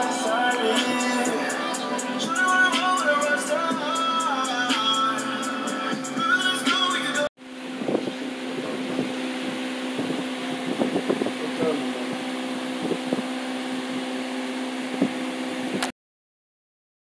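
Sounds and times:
electric fan humming: 0:00.0 - 0:15.9.

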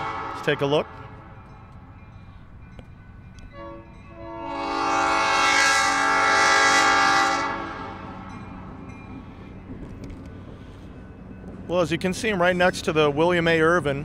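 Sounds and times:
locomotive air horn blast: 0:00.0 - 0:01.0, 0:03.5 - 0:08.3
passing train rumble: 0:00.0 - 0:14.0.

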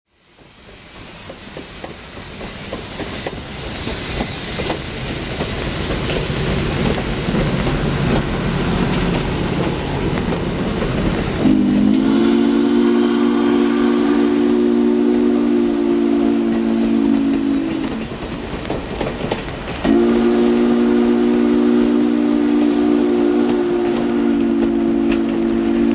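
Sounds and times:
steam locomotive running: 0:00.1 - 0:25.9
three-chime steam whistle: 0:11.4 - 0:18.0, 0:19.8 - 0:25.9.

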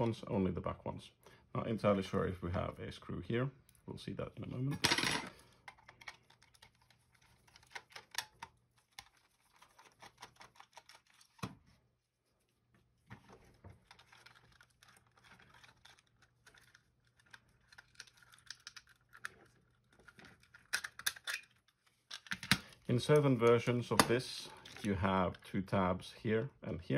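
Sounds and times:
plastic shell handling: 0:04.6 - 0:11.8, 0:13.0 - 0:25.4.

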